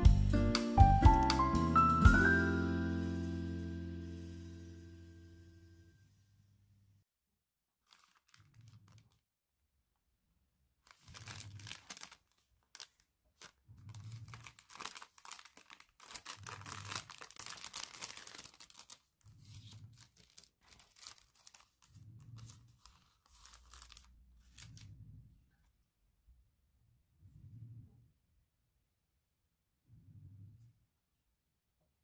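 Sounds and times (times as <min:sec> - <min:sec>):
paper cards being handled: 0:07.8 - 0:09.2, 0:10.9 - 0:24.9
cellophane crinkling: 0:07.8 - 0:09.3, 0:10.8 - 0:25.0.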